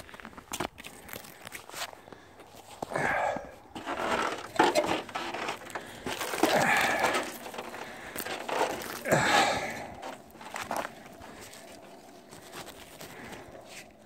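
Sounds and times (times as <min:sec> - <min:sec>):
boughs rustling against phone: 0:03.6 - 0:14.0.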